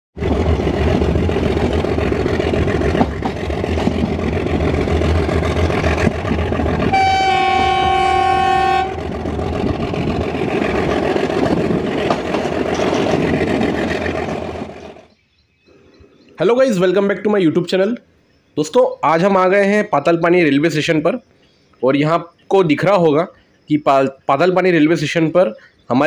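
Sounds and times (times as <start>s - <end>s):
diesel locomotive engine running: 0.2s - 15.1s
train wheels clacking over rails: 0.2s - 15.1s
train horn: 6.8s - 9.2s.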